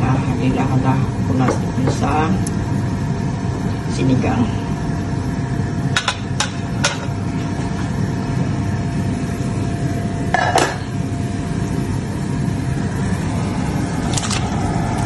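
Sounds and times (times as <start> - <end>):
steady kitchen hum: 0.0 - 15.0
pot lid clatter: 10.4 - 10.9.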